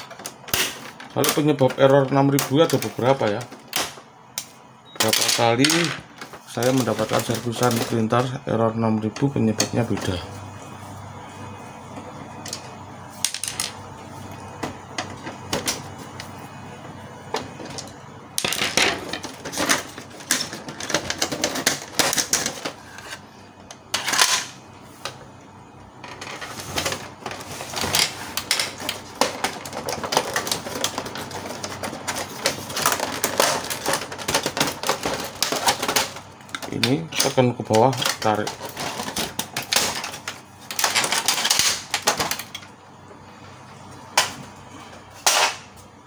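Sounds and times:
plastic casing clicking and clattering: 26.1s - 42.6s.

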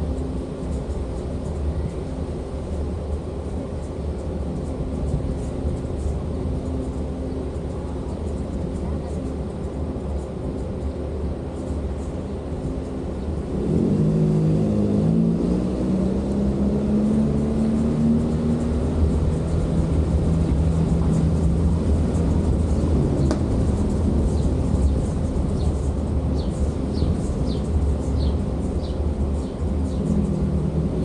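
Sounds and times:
constant low rumble: 0.0s - 31.0s
vehicle engine running: 0.0s - 31.0s.

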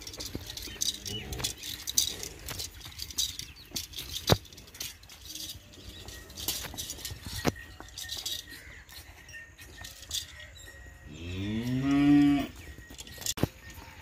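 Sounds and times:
cow mooing: 11.1s - 12.6s.

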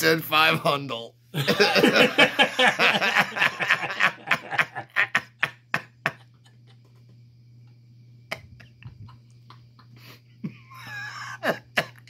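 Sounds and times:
low electrical hum: 0.0s - 12.0s
laughter: 1.4s - 7.0s, 8.3s - 12.0s.

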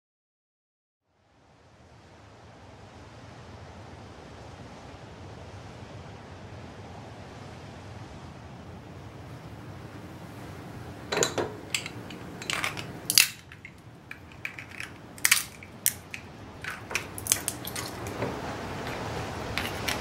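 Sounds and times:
walnut shells cracking: 11.6s - 20.0s.

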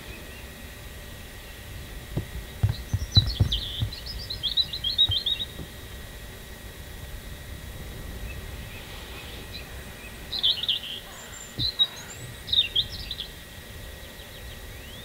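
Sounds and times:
low background rumble: 0.0s - 15.0s
small songbird chirping: 1.4s - 6.0s, 8.2s - 15.0s.

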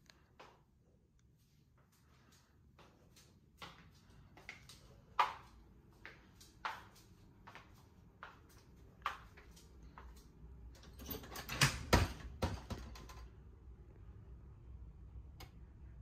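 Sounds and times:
wooden shutters knocking: 11.5s - 13.3s.

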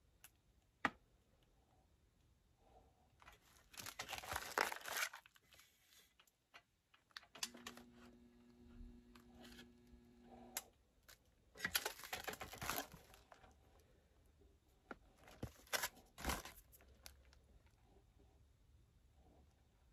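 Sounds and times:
foil bag crinkling: 3.3s - 6.2s, 11.1s - 13.6s, 15.2s - 17.3s
heat sealer electrical hum: 7.2s - 13.9s.

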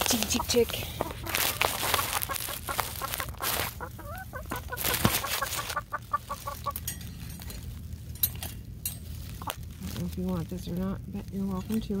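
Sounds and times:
chicken clucking: 0.1s - 6.8s
chicken wavering call: 0.4s - 6.8s.

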